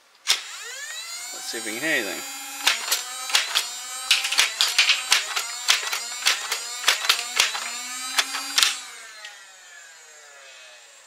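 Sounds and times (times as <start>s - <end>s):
toy blaster firing clicks: 0.3s - 9.4s
flywheels whining: 0.3s - 11.0s
darts striking targets: 2.6s - 8.8s.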